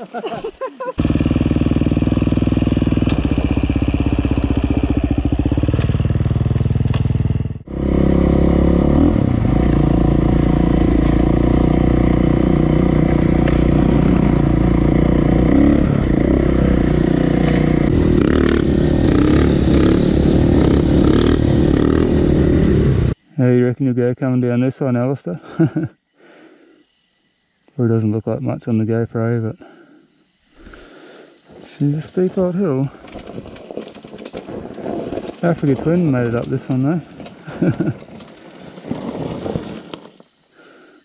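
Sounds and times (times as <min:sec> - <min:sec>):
dirt bike engines running: 0:00.0 - 0:23.5, 0:30.6 - 0:40.8
dirt bike engine revving: 0:01.0 - 0:23.2, 0:35.3 - 0:38.0.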